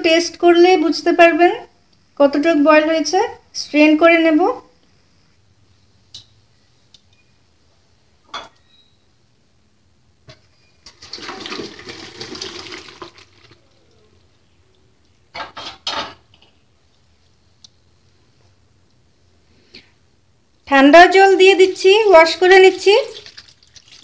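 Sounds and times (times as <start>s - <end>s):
water splashing into colander: 10.8s - 13.7s, 22.7s - 24.0s.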